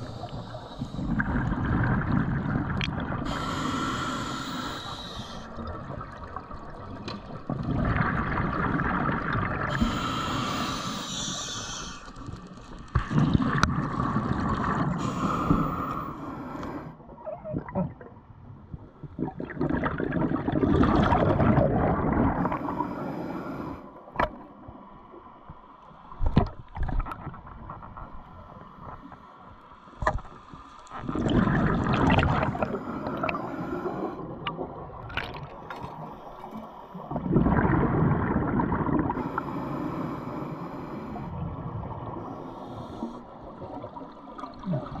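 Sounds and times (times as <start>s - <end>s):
diver breathing through regulator: 0.0s - 1.4s, 3.2s - 5.6s, 9.7s - 12.4s, 14.8s - 17.0s, 22.4s - 24.0s, 32.3s - 34.3s, 39.1s - 41.4s, 42.2s - 43.5s
bubbling exhalations: 19.1s - 22.6s, 31.0s - 33.4s, 37.1s - 39.3s.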